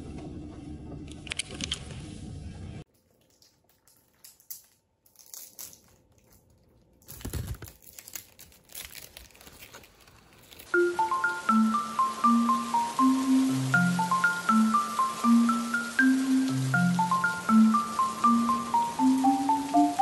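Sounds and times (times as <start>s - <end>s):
plastic and paper wrapping crinkling: 2.9s - 10.8s.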